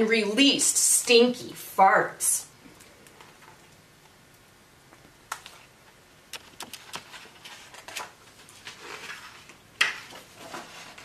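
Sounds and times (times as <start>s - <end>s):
book pages clicking and tapping: 6.3s - 11.0s
paper rustling: 6.3s - 11.0s.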